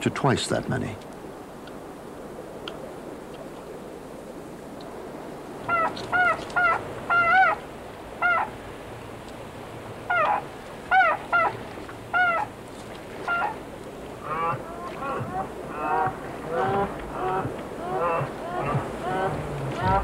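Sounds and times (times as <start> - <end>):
low steady hiss: 0.0 - 20.0
beaver kits crying: 12.1 - 12.5, 14.2 - 20.0.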